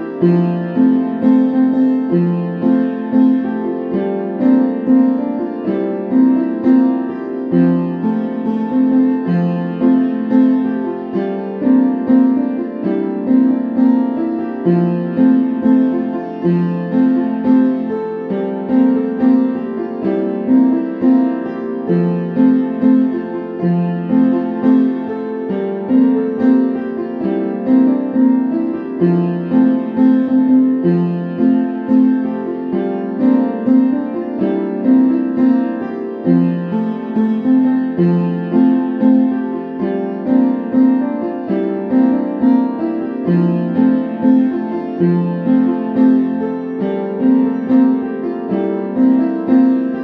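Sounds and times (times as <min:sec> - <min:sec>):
gentle piano music: 0:00.0 - 0:50.0.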